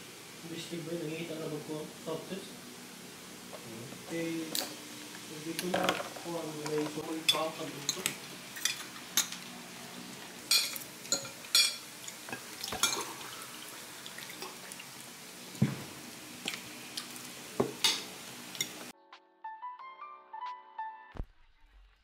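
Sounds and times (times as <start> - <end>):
faint room hiss: 0.0 - 18.9
cutlery clinking on plates: 10.5 - 13.2, 17.6 - 18.8.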